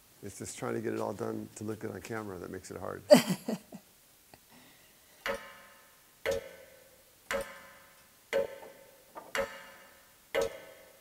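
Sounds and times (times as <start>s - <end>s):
clock ticking: 5.2s - 11.0s.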